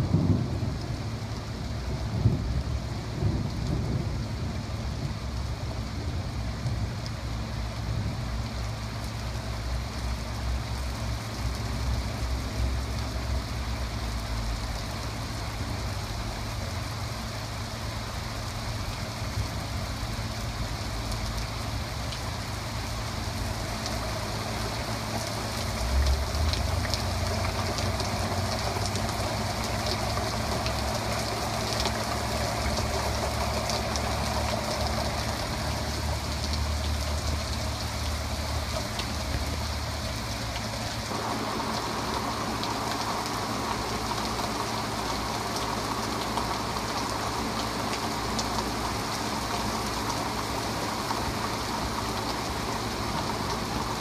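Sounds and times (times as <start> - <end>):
low thunder rumble: 0.0 - 7.0
rain falling steadily: 0.0 - 54.0.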